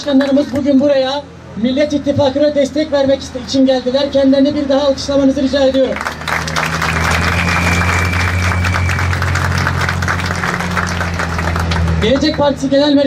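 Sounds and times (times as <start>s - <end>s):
crowd applauding: 5.8s - 12.6s
low hum: 6.2s - 12.0s.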